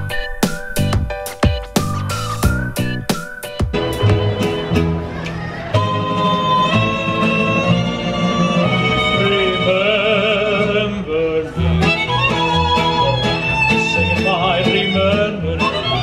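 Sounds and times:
pulsing bass line: 0:00.0 - 0:04.9
strummed acoustic guitars: 0:02.6 - 0:16.0
violin melody with vibrato: 0:05.7 - 0:16.0.

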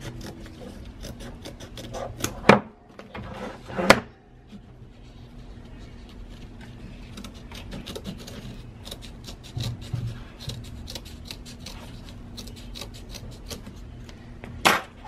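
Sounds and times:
scissors snipping fabric: 0:00.0 - 0:02.4, 0:07.1 - 0:13.8.

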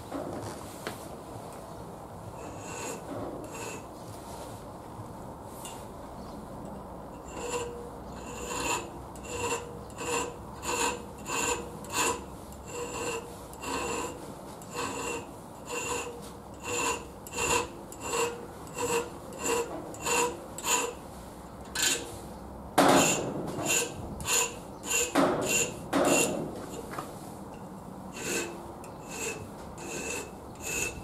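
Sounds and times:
file rasping on steel: 0:02.4 - 0:03.9, 0:07.2 - 0:21.0, 0:21.8 - 0:22.1, 0:22.8 - 0:26.8, 0:28.1 - 0:31.0.

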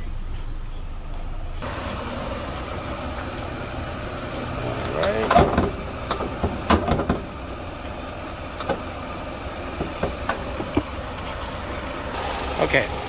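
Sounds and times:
car hood clicks and clunks: 0:04.2 - 0:07.4, 0:08.5 - 0:09.0, 0:09.6 - 0:11.4.

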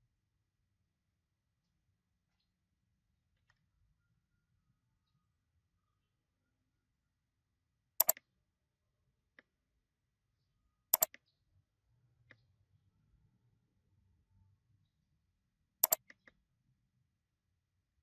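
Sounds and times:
computer mouse clicking: 0:08.0 - 0:08.2, 0:11.0 - 0:11.2, 0:15.8 - 0:16.4.

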